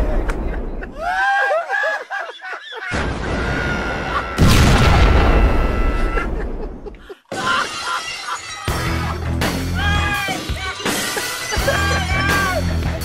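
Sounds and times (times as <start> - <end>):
explosion blast: 2.9 - 6.9
music: 8.2 - 13.0.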